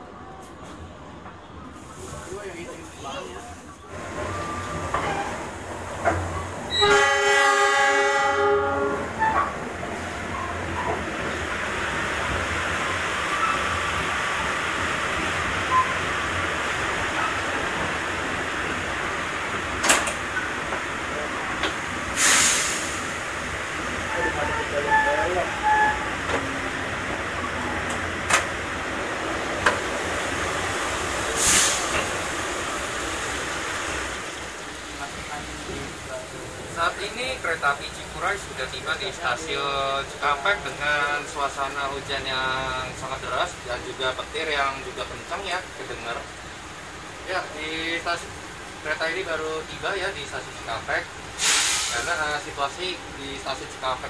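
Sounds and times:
train coach rumbling on rails: 0.0 - 54.0
heavy rain: 2.1 - 54.0
train horn blast: 6.7 - 9.4, 24.1 - 26.1
brief hiss: 22.1 - 23.1, 31.4 - 32.1, 51.4 - 52.2.

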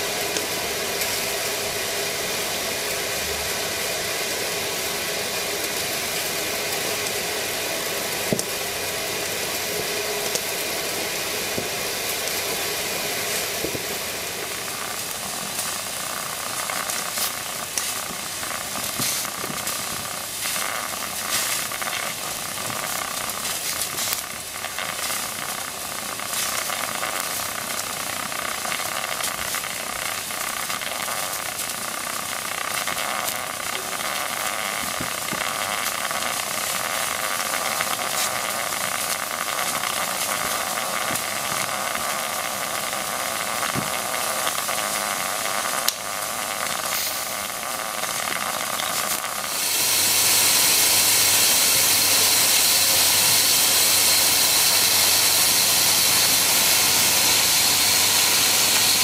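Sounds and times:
steam boiler hissing: 0.0 - 59.0
light crackling: 4.2 - 59.0.

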